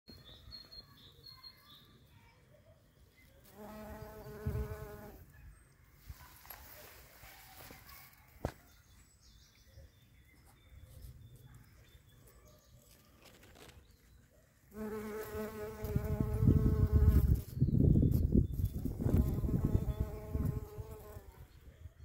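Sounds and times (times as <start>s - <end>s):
bee buzzing in flight: 3.6s - 5.2s, 14.8s - 21.2s.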